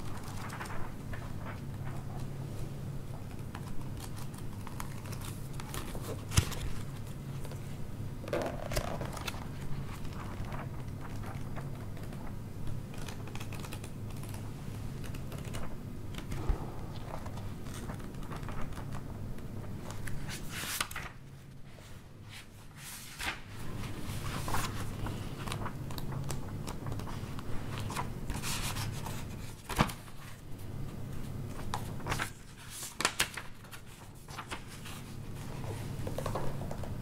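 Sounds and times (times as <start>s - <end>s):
steady low hum: 0.0s - 32.8s, 33.7s - 37.0s
rustling and handling noises: 0.0s - 37.0s.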